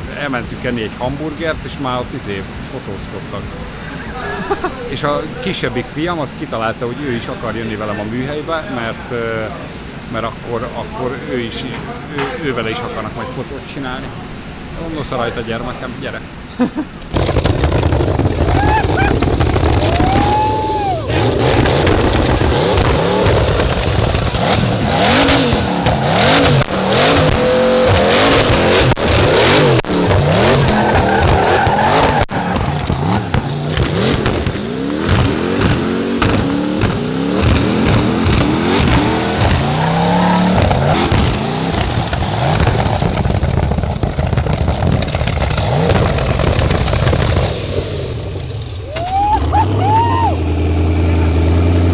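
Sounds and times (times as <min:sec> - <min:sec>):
car engine revving: 0:17.0 - 0:51.9
exhaust cracks: 0:17.0 - 0:51.9.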